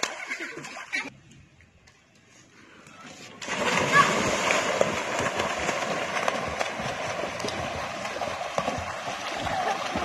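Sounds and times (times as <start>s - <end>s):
children splashing in a pool: 0.0s - 1.1s, 3.1s - 10.0s
hands and feet slapping water: 0.0s - 1.1s, 3.3s - 10.0s.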